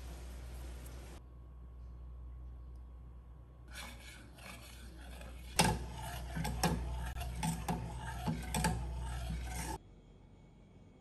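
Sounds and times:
ladle scraping saucepan: 3.7s - 9.8s.

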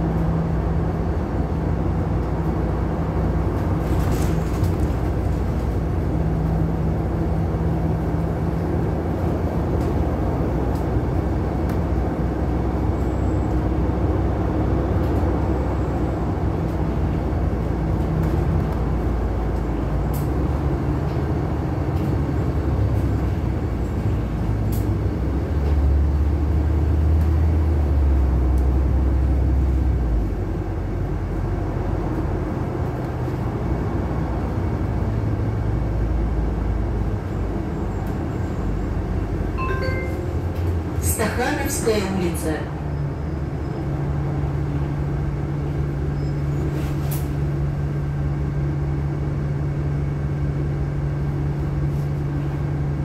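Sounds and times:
bus engine drone: 0.0s - 53.0s
road noise: 0.0s - 53.0s
stepped electronic chime: 39.6s - 40.5s.

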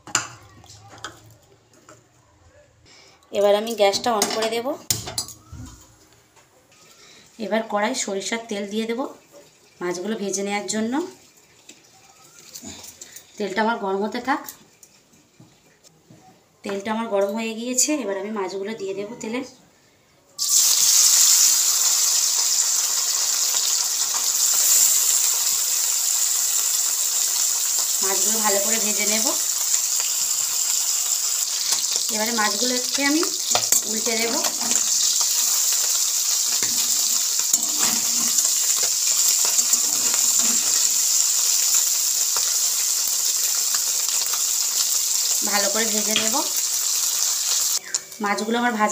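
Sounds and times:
fish sizzling in hot oil: 6.8s - 13.4s, 20.4s - 48.6s
spatula scraping a pan: 36.5s - 41.2s.

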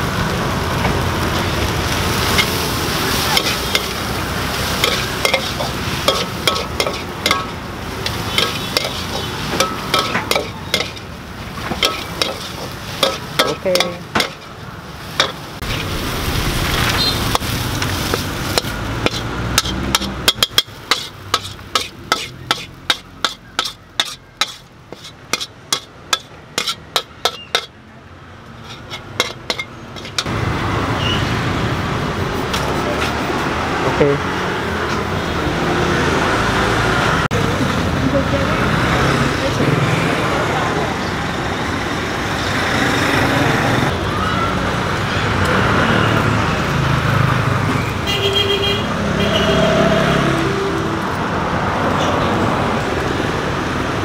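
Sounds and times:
steady sizzle: 0.0s - 27.7s
spatula scraping against pan: 4.6s - 14.5s, 17.3s - 27.8s, 28.5s - 30.3s.

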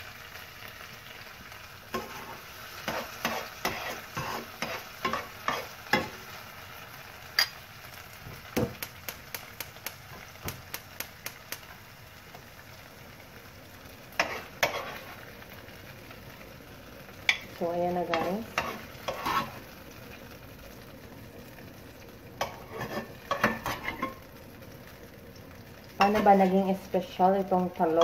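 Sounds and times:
faint oil sizzling: 0.0s - 28.0s
metal spoon scraping a pan: 1.9s - 6.2s, 14.2s - 15.2s, 17.3s - 19.7s, 22.4s - 24.2s.

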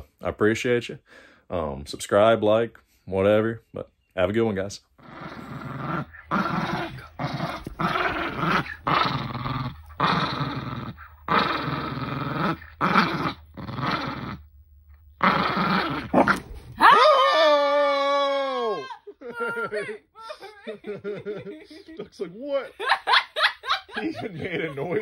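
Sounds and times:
dogs growling in play: 5.0s - 14.5s, 15.1s - 16.8s.

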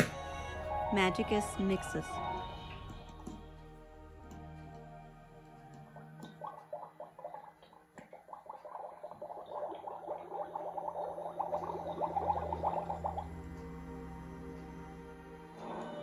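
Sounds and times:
toy cauldron bubbling: 4.3s - 16.0s.

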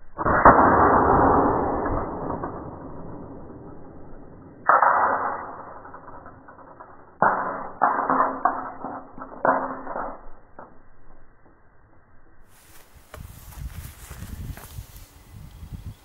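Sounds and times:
sharp cracks and knocks: 0.2s - 10.8s.

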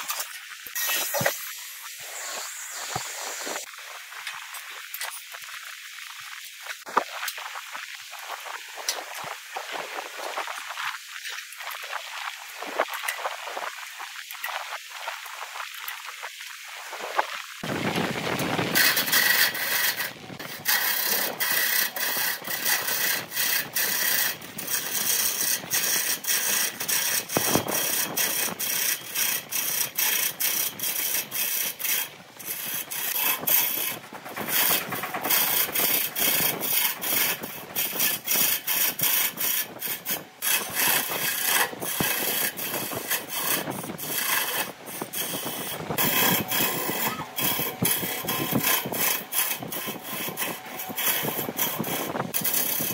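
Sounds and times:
lathe gouge scraping wood: 0.0s - 3.7s, 18.2s - 52.9s.

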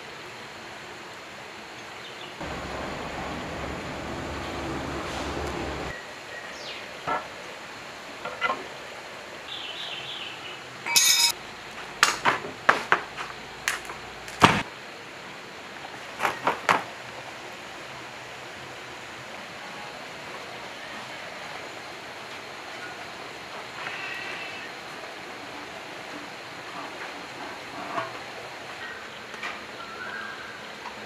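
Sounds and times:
metal engine parts clinking: 10.9s - 11.4s.

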